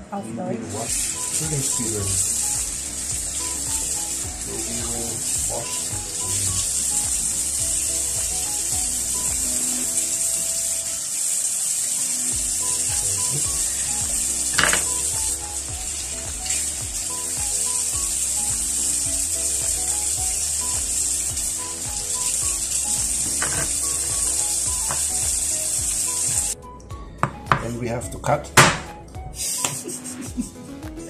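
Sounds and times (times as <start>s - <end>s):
soft background music: 0.0s - 31.0s
tap running into sink: 13.4s - 15.3s, 23.0s - 25.4s
knife chopping on wooden board: 14.6s - 14.9s, 27.2s - 27.7s, 28.6s - 28.9s.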